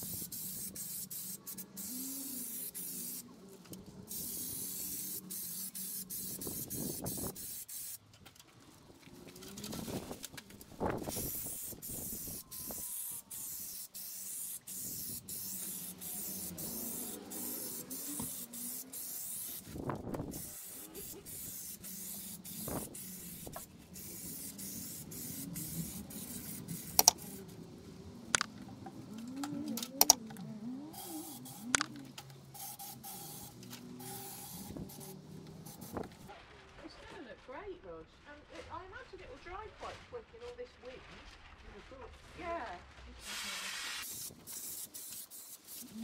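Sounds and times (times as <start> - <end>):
spray gun hissing: 0.0 - 3.3, 4.1 - 8.0, 10.8 - 27.6, 30.9 - 36.3, 43.2 - 46.0
sharp clicks: 26.9 - 27.2, 29.2 - 30.4.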